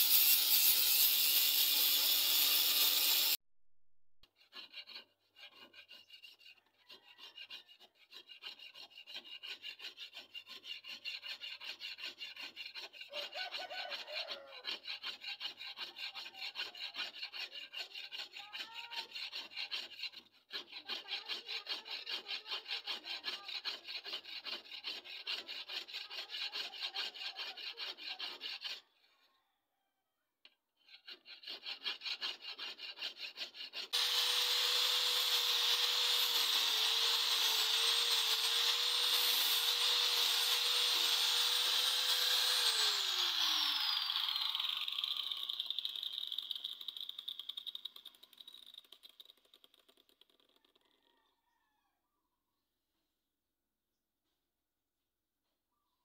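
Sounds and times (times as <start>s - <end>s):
blade sharpening scrapes: 4.3s - 28.8s.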